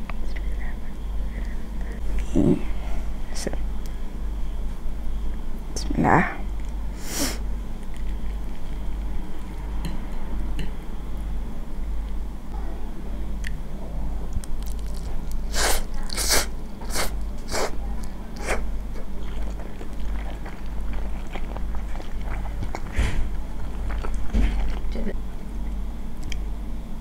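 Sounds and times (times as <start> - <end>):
low electrical hum: 0.0 - 27.0
wet chewing with clicks: 7.8 - 10.0, 14.3 - 26.5
loud noodle slurps: 15.5 - 17.7.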